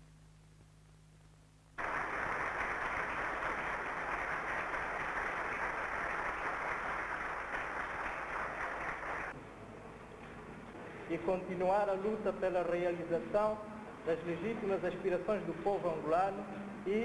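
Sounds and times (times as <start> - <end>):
faint steady hum: 0.0 - 17.0
applause: 1.8 - 9.4.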